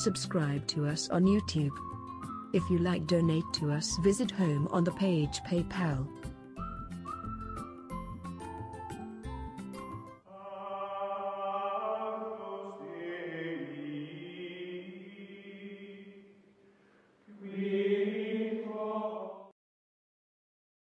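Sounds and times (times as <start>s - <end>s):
choir-like chanting chords: 10.3s - 16.4s, 17.3s - 19.5s.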